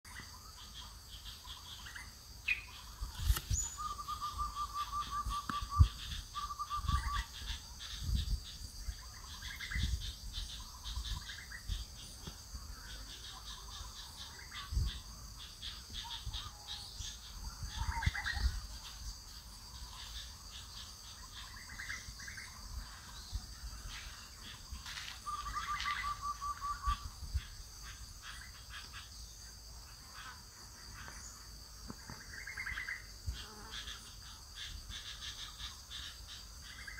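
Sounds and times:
bird chirps: 0.1s - 29.5s, 32.0s - 36.9s
high insect buzz: 0.1s - 36.9s
bird trilling call: 1.5s - 7.6s, 24.8s - 27.1s.

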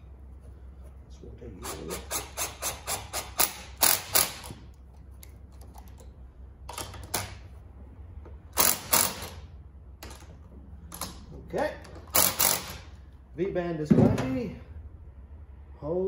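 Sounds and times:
impact driver bursts: 1.6s - 4.7s, 8.5s - 9.5s, 12.0s - 13.0s.

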